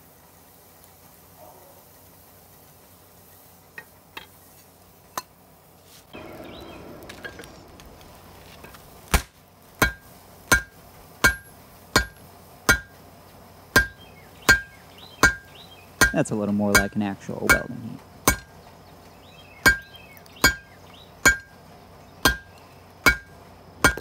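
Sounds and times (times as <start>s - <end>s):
hammer striking metal on anvil: 9.8s - 13.0s, 13.7s - 15.4s, 16.0s - 18.5s, 19.6s - 21.5s, 22.2s - 24.0s.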